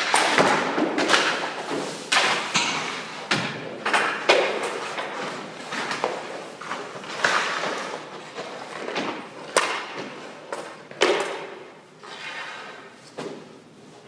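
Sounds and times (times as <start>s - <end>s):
skate blades scraping ice: 4.4s - 8.7s, 12.0s - 13.0s.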